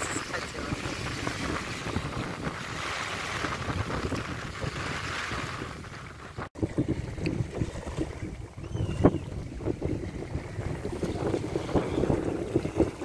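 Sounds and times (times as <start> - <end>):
wind gusting on microphone: 0.0 - 13.0.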